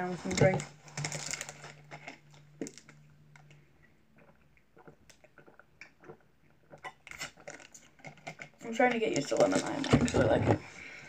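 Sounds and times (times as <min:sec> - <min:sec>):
person gulping: 0:03.9 - 0:07.3.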